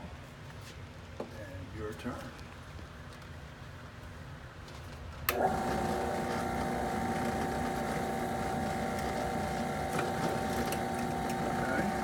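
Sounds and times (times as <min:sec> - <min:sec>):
drill press motor whining: 0:05.3 - 0:12.0.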